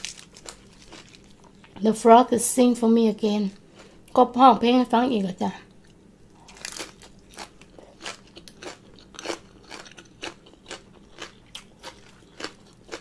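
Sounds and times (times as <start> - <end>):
person chewing crunchy food: 0.0 - 1.8, 5.8 - 13.0.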